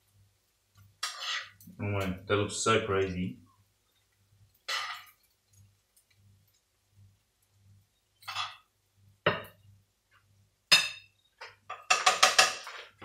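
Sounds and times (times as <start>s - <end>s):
spoon scraping cookware: 1.0s - 1.7s, 4.6s - 5.3s, 8.2s - 8.6s, 10.8s - 13.0s.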